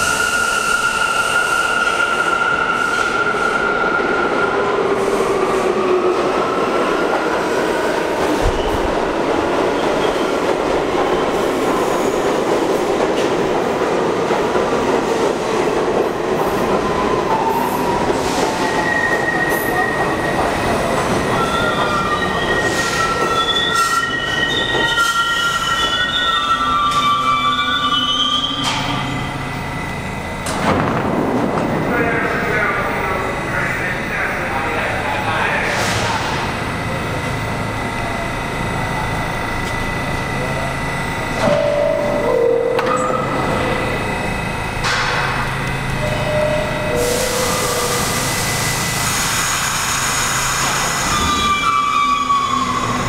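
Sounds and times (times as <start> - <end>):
high squealing of train brakes: 0.0 - 5.7, 17.0 - 29.9, 45.1 - 53.0
subway train wheels rumbling: 0.0 - 53.0.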